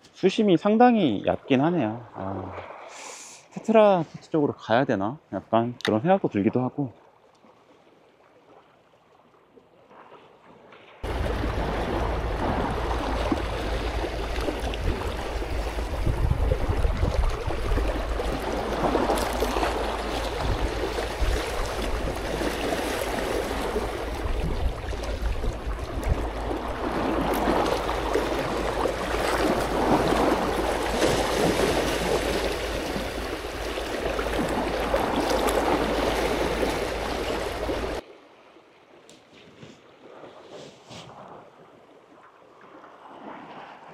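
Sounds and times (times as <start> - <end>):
sea water washing against rocks: 11.0 - 38.0
wind rumbling on microphone: 11.0 - 38.0.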